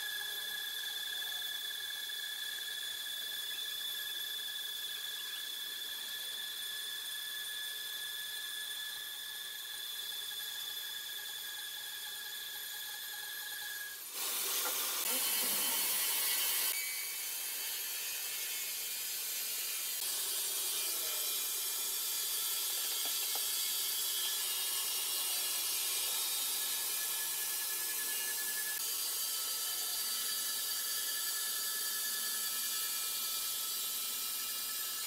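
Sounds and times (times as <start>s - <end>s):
band saw blade whining: 0.0s - 35.0s
rough hiss of sawing: 14.0s - 35.0s.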